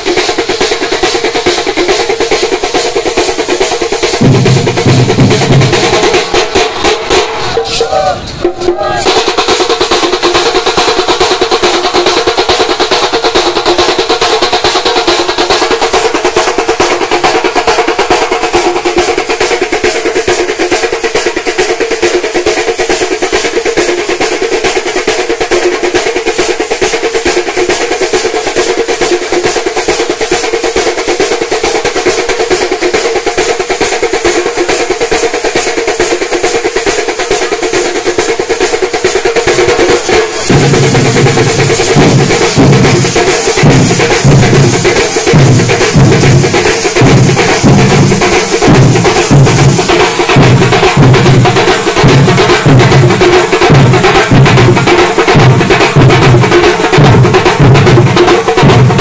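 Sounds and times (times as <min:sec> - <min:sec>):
street percussion band drumming: 0:00.0 - 0:59.0
deep loud drum strokes: 0:04.2 - 0:09.4.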